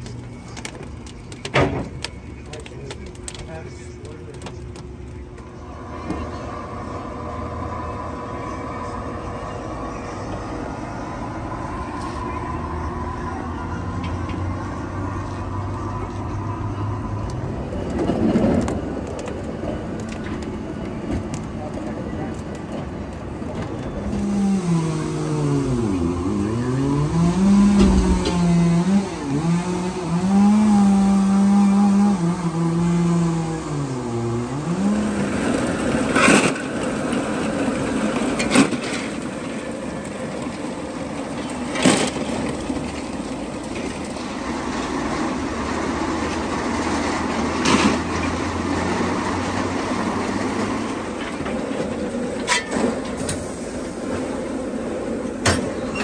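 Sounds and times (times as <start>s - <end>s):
truck engine revving: 24.0s - 55.9s.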